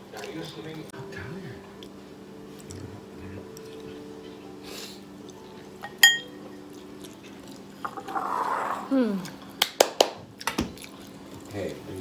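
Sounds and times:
chopsticks clinking on ceramic bowl: 5.8s - 6.4s.

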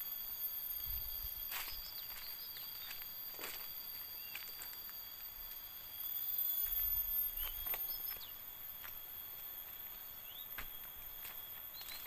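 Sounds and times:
high-pitched insect drone: 0.0s - 12.0s
footsteps on leaf litter: 1.5s - 5.0s, 6.6s - 12.0s
bird chirps: 7.3s - 8.5s, 10.2s - 10.8s.

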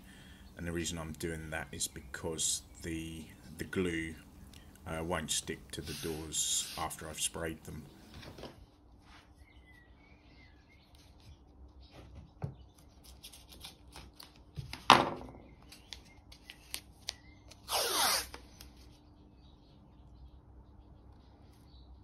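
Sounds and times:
tape rubbing and clicks: 15.7s - 18.9s
tape ripping off roll: 17.6s - 18.4s.

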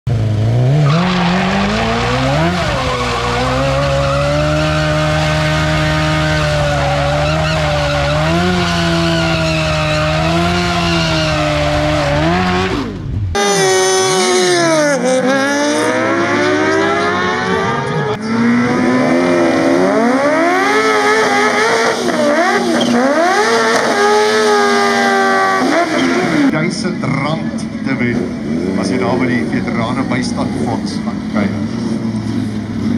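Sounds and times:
motorcycle engine revving up and down: 0.1s - 26.6s
motorcycle engine at high revs: 1.4s - 26.6s.

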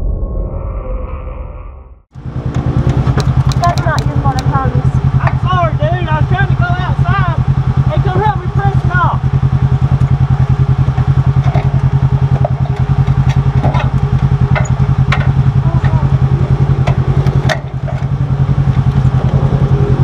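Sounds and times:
engine idling: 2.2s - 20.0s
sharp clicks: 2.5s - 4.6s.

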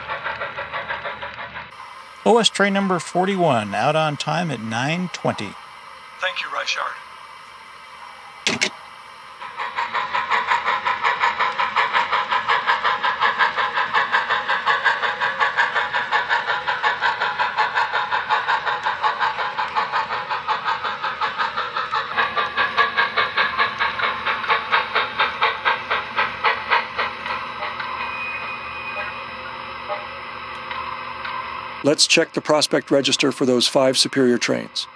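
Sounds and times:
model steam locomotive chuffing: 0.0s - 34.9s
telephone handset clunk: 8.5s - 8.7s.

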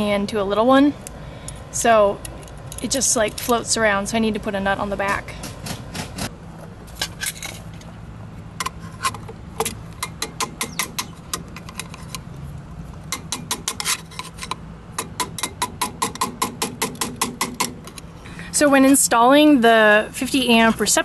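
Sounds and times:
screwdriver clicking and scraping metal: 8.6s - 12.3s, 13.0s - 18.1s.

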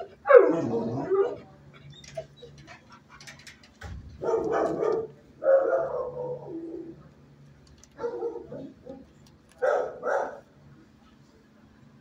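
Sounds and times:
dogs barking: 0.0s - 1.5s, 4.2s - 7.0s, 8.0s - 10.5s.

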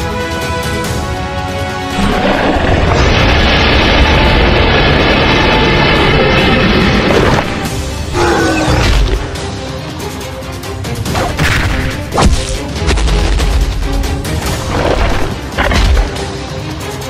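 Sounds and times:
fight scene music: 0.0s - 17.0s
crashing and booming impacts: 1.9s - 8.1s.

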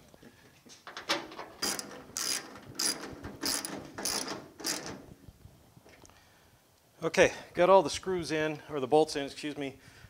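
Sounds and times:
hand ratchet clicking: 1.6s - 5.0s.

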